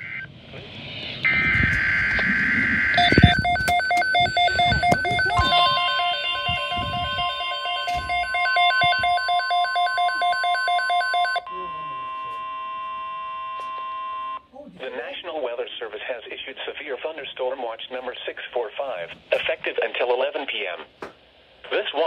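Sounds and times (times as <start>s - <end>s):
rapid pulsed electronic beeping: 1.2s - 10.9s
steady warning alarm tone: 1.2s - 14.5s.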